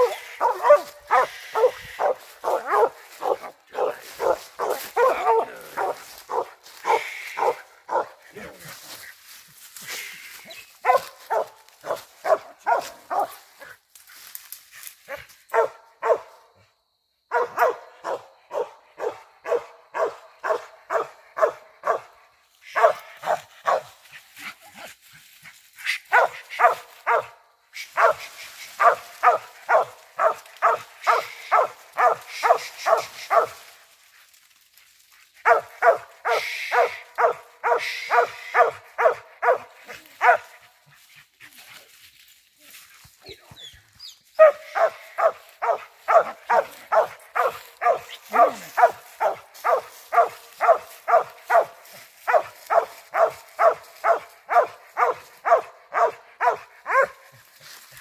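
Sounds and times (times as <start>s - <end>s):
dog barking: 0.0s - 8.5s, 10.8s - 13.4s, 15.1s - 16.4s, 17.3s - 22.2s, 22.8s - 24.0s, 26.1s - 27.4s, 28.0s - 33.6s, 35.4s - 40.6s, 44.4s - 57.4s.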